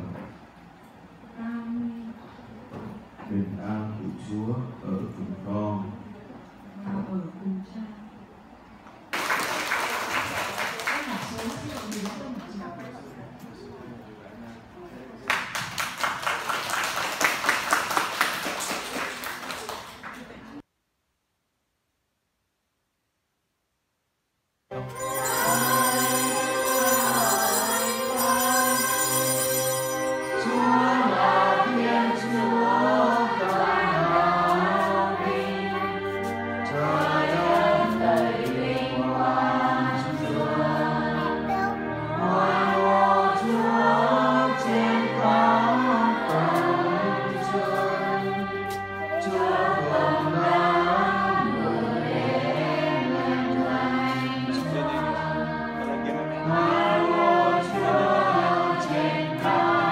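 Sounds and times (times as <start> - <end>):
choir singing a hymn: 24.7 - 59.9.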